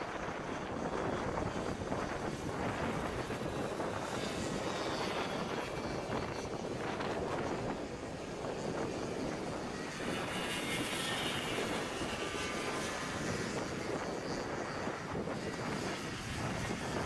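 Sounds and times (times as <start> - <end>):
racing kart engines droning: 2.7 - 13.9.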